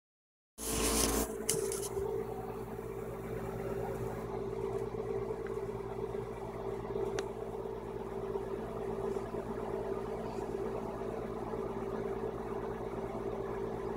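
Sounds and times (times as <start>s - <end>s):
machine hum: 0.6s - 13.9s.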